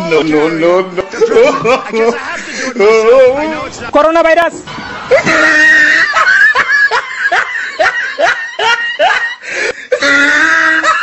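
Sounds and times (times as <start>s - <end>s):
high-pitched laughter: 5.0s - 11.0s.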